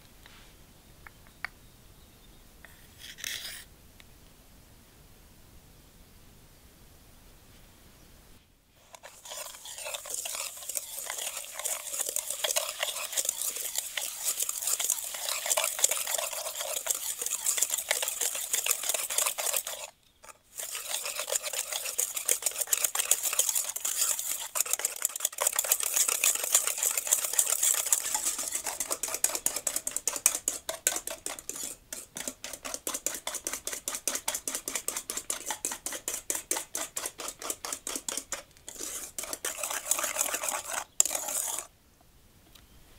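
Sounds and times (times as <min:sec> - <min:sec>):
whisk clicking against bowl: 0:08.9 - 0:41.7.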